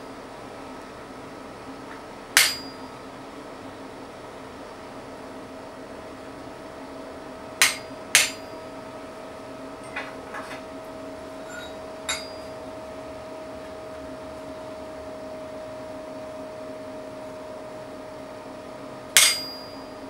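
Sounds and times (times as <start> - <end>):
hammer striking chisel on metal: 2.4 - 2.8, 7.6 - 8.6, 11.4 - 12.5, 19.2 - 19.9.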